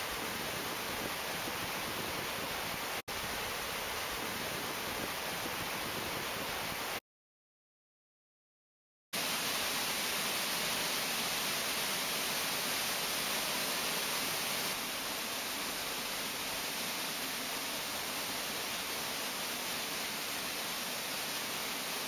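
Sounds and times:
waterfall rushing: 9.2 - 22.0.

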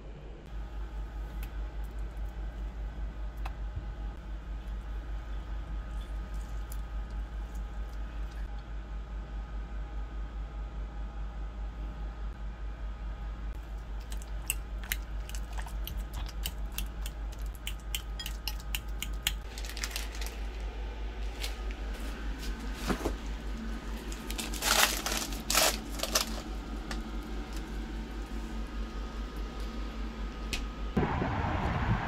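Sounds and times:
steady low hum: 0.0 - 32.0
plastic bag crinkling: 19.4 - 28.4.

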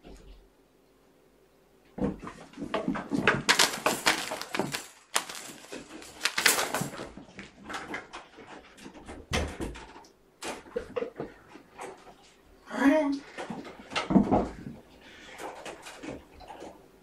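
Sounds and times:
kittens scrambling and knocking toys: 2.3 - 9.0.

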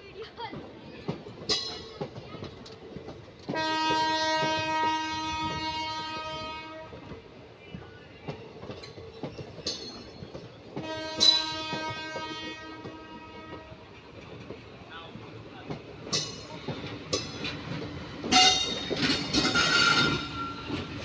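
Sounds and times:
train coaches clanking over rail joints: 0.1 - 21.0
locomotive horn blasts: 3.5 - 7.0, 10.8 - 13.8, 19.4 - 20.8.

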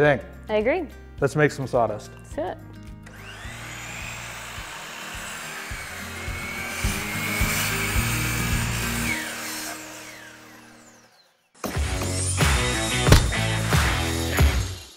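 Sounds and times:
background music: 0.0 - 11.0, 11.6 - 14.9
miter saw cutting wood: 3.1 - 11.5.

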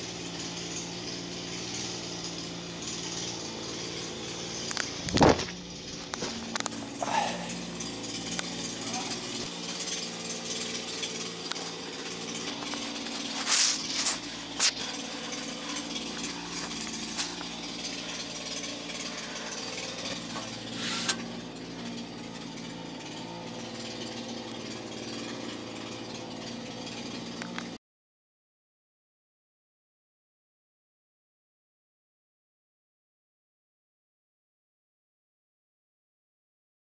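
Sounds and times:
diesel engine running: 0.0 - 27.8
metal scrapes and clanks: 0.3 - 27.8
bucket digging in sand: 8.6 - 22.9.

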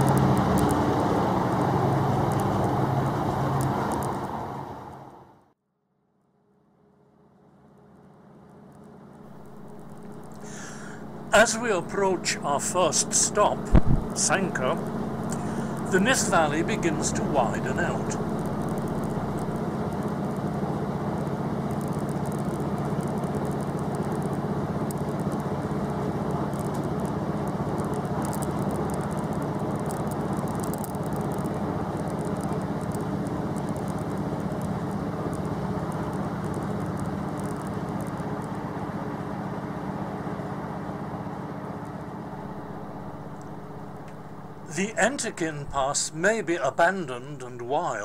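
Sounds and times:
train hum and rumble: 0.0 - 5.5, 7.2 - 48.0
light high clicking and rattling: 21.2 - 38.6.

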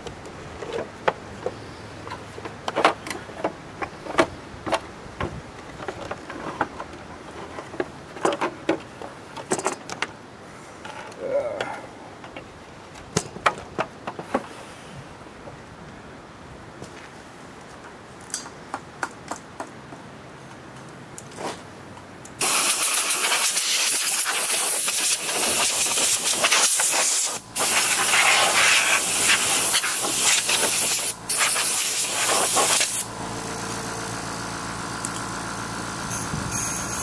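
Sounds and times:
compressed air hissing: 22.4 - 33.1
steady motor hum: 27.4 - 37.0.

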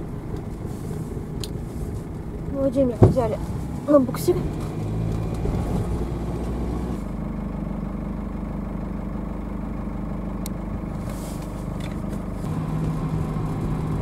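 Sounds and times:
van engine running: 0.0 - 14.0.

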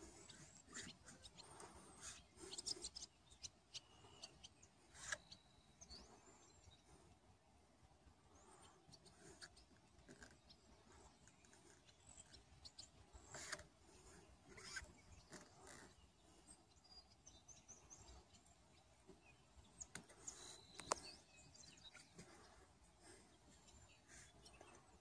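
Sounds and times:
soft high bird chirps: 0.0 - 7.2, 8.2 - 25.0
faint clicks: 19.8 - 21.1.

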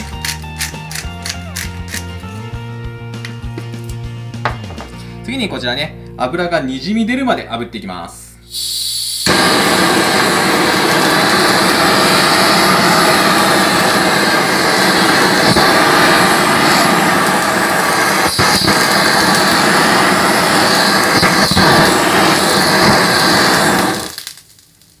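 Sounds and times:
gas torch flame hissing: 8.4 - 24.5.

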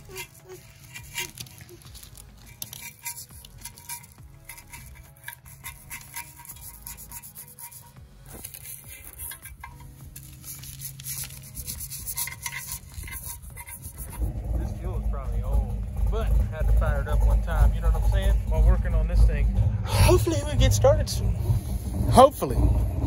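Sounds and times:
brush scrubbing wet metal: 0.0 - 14.6
faint background music: 0.0 - 23.0.

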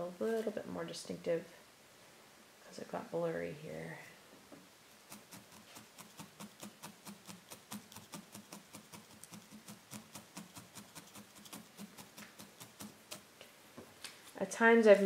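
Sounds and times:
felting needles stabbing wool: 5.0 - 13.3.

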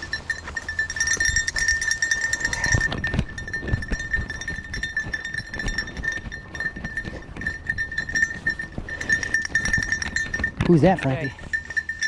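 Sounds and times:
footsteps on dry grass and leaves: 0.0 - 12.0
high-pitched ringing tone: 0.0 - 12.0.

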